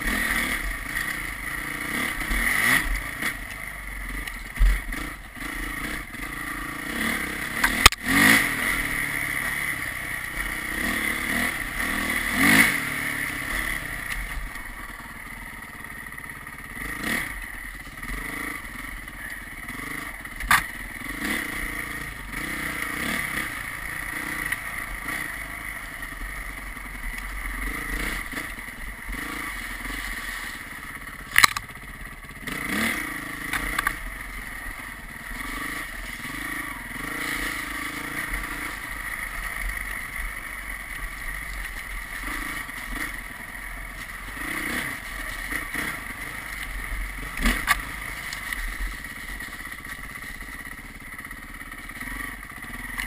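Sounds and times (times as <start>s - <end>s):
road and wind noise: 0.0s - 53.0s
vehicle engine revving: 0.0s - 53.0s.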